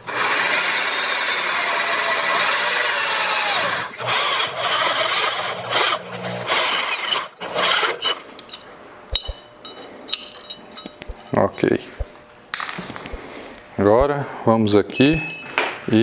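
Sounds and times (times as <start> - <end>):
electric drill motor whine: 0.0 - 8.0
drill bit rasping metal: 0.1 - 8.6.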